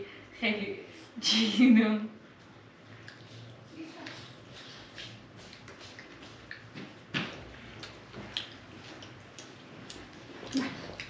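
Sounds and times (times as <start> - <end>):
low steady hum: 0.0 - 11.0
people eating by hand: 2.8 - 11.0.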